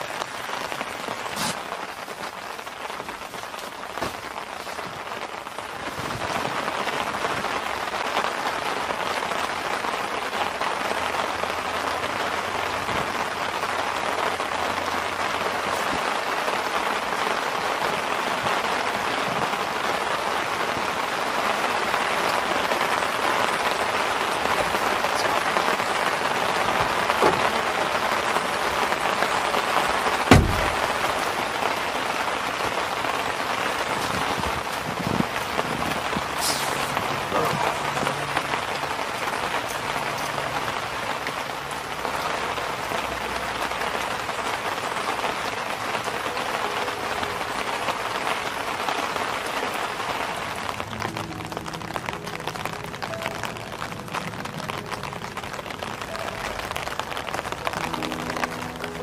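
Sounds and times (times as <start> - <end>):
rain falling on tent fabric: 0.0 - 59.0
sharp knock: 30.3 - 30.7.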